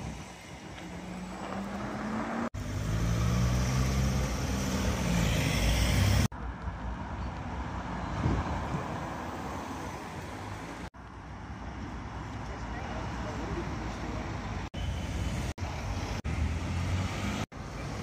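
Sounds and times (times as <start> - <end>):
passing traffic and tyre noise: 0.0 - 18.0
car engine pulling away: 0.7 - 6.3.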